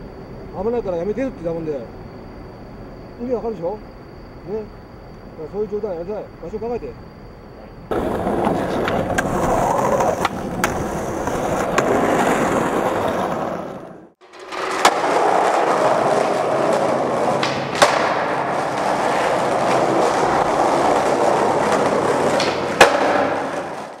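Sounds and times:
skateboard clacks: 7.9s - 24.0s
skateboard wheels rolling: 7.9s - 24.0s.

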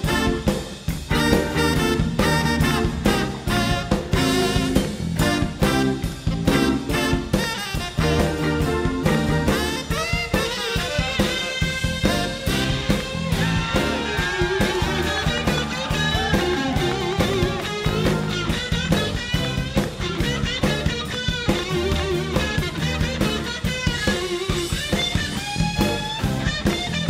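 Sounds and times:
busy drum kit: 0.0s - 27.0s
saxophone: 0.0s - 27.0s
electric guitar lines: 8.4s - 27.0s.

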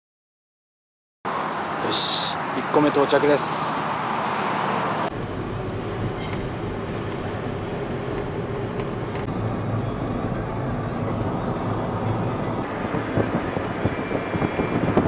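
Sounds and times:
car engine and tyre rumble: 1.3s - 15.0s
wind buffeting microphone: 5.1s - 15.0s.

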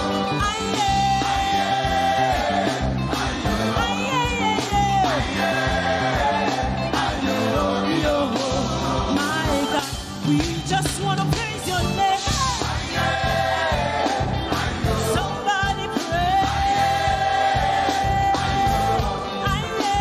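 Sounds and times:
drum kit beat: 0.0s - 20.0s
lead singer: 0.0s - 20.0s
women's choir singing: 1.4s - 3.5s, 5.1s - 9.2s, 12.6s - 15.4s, 16.4s - 19.3s.

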